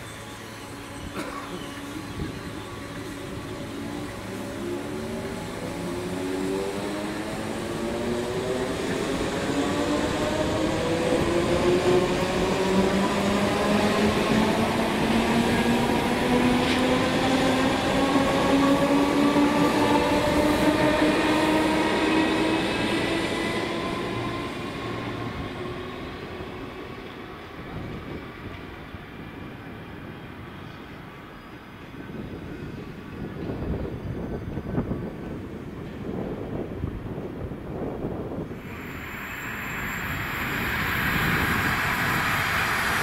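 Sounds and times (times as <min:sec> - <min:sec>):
electric train motor whine: 0:38.6 - 0:43.0.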